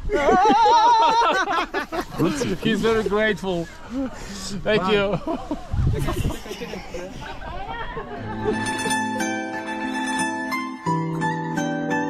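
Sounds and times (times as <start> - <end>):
plucked string notes ringing: 8.2 - 12.0.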